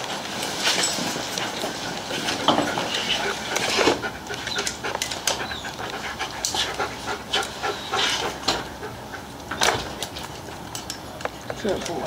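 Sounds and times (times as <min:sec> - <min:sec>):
dog panting: 0:01.3 - 0:10.5.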